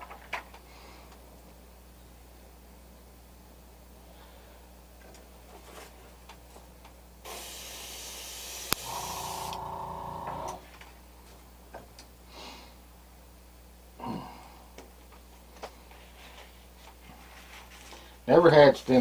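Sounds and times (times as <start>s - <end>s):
airbrush spraying hiss: 7.3s - 9.8s
short hum: 8.7s - 10.6s
faint handling clicks and rustles: 15.0s - 18.2s.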